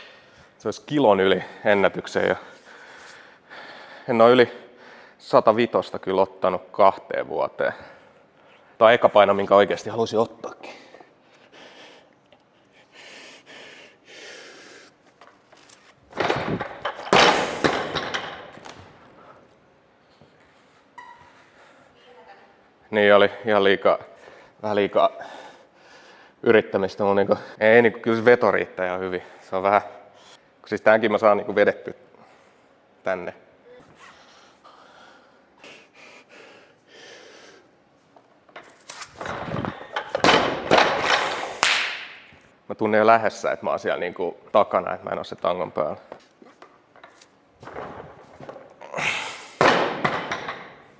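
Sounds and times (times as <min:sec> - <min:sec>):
person breathing: 0:00.0 - 0:00.6, 0:02.4 - 0:05.2, 0:10.6 - 0:15.0, 0:25.2 - 0:26.4, 0:33.7 - 0:37.8, 0:48.8 - 0:49.6
barbell clattering bounces: 0:16.1 - 0:18.9
barbell crashing onto platform: 0:16.2 - 0:18.6, 0:49.6 - 0:50.8.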